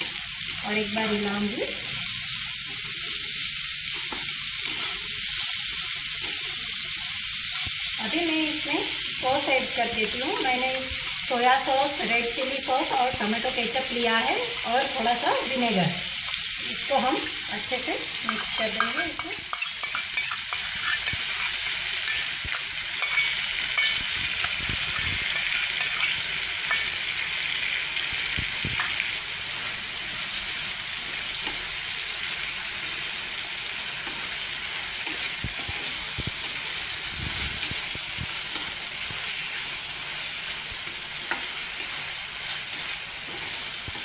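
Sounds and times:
vegetables sizzling in a frying pan: 0.0 - 44.0
spatula scraping and knocking pan: 18.2 - 27.1.

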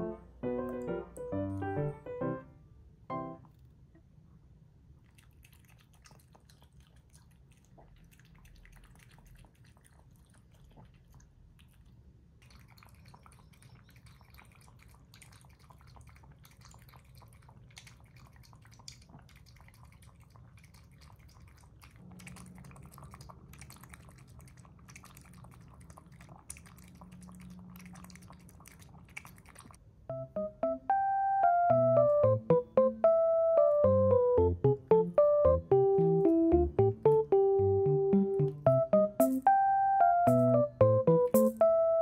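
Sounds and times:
dog lapping water: 5.0 - 29.8.

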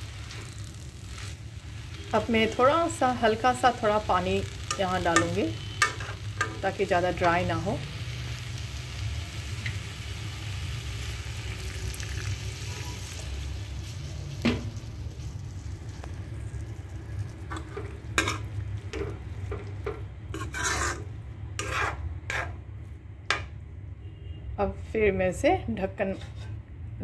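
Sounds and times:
vegetables sizzling in a pan: 0.0 - 22.9
spatula scraping a pan: 4.6 - 6.6, 17.4 - 22.6.

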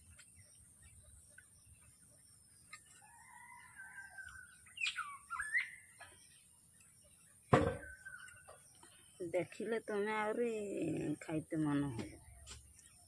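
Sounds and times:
birds whistling calls: 3.2 - 6.3, 7.5 - 9.0
sharp knock: 7.5 - 7.8.

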